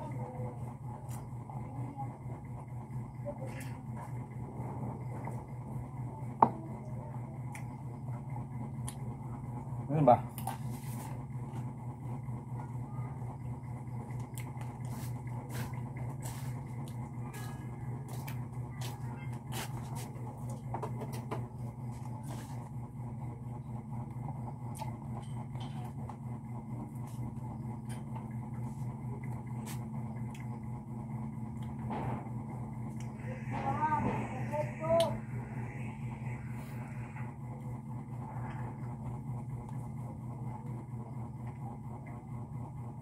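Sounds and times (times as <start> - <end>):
steady low hum: 0.0 - 43.0
eating clicks and smacks: 14.2 - 14.7.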